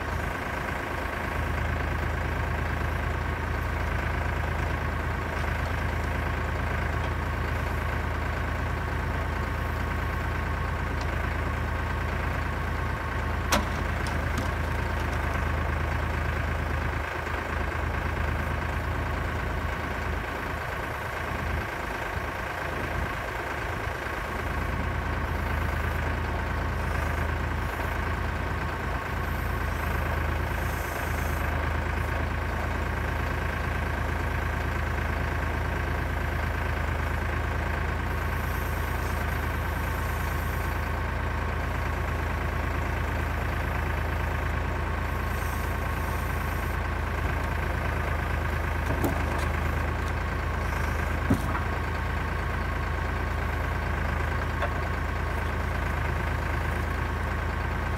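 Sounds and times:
diesel tractor engine running: 0:00.0 - 0:57.9
hydraulic whine: 0:45.0 - 0:52.3
short knocks: 0:51.2 - 0:51.7.

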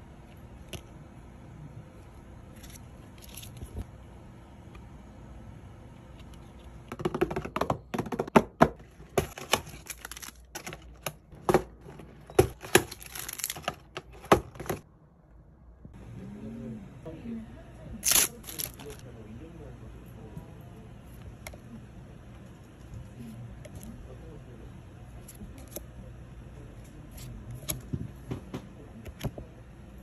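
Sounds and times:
foil wrappers crinkling and tearing: 0:09.4 - 0:10.8, 0:12.6 - 0:13.7, 0:18.0 - 0:19.0.

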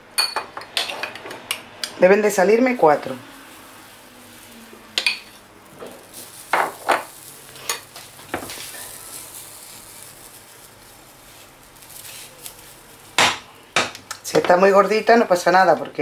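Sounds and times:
batter sizzling in a frying pan: 0:01.5 - 0:15.8
metal spoon scraping and tapping: 0:05.0 - 0:05.4.

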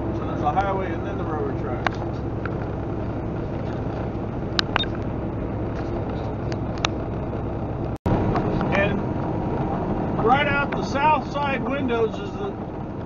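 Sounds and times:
truck engine and road rumble: 0:00.0 - 0:13.0.

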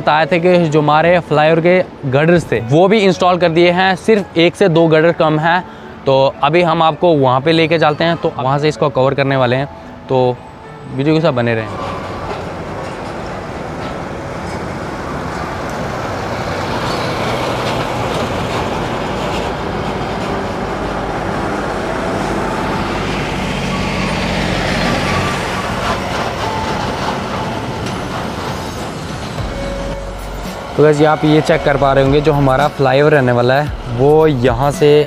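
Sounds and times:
rumble of engines and tyres: 0:00.0 - 0:35.0
heavier engine note: 0:14.1 - 0:35.0.

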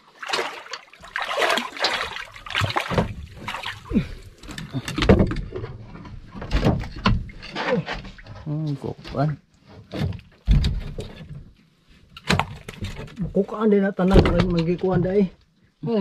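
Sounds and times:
water splashing around boat: 0:00.0 - 0:11.5.

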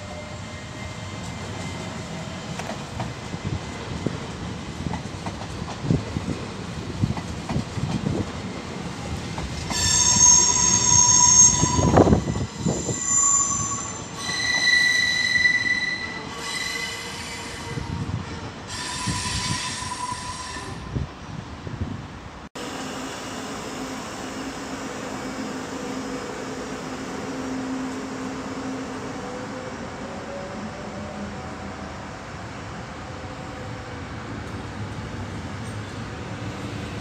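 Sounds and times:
train wheels rumbling and knocking: 0:01.0 - 0:10.6
train wheels squealing: 0:09.7 - 0:18.0, 0:18.7 - 0:20.9, 0:23.2 - 0:31.2.

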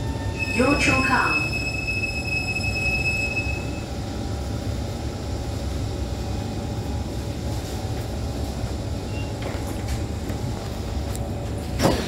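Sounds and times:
train interior rumble and hiss: 0:00.0 - 0:12.0.

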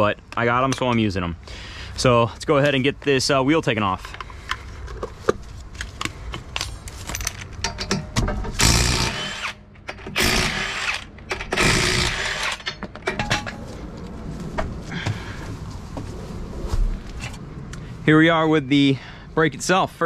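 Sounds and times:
clatter of nuts and wheel: 0:06.5 - 0:09.2
impact wrench spinning nuts: 0:08.5 - 0:12.8.

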